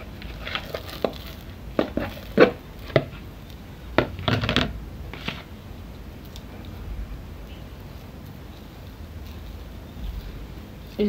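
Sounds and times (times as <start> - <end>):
dough thumping in plastic bowl: 3.9 - 5.4.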